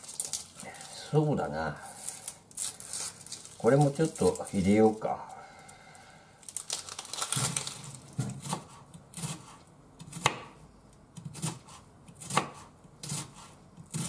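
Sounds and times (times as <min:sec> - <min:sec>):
knife chopping on wooden board: 0:08.1 - 0:10.6, 0:11.2 - 0:14.0.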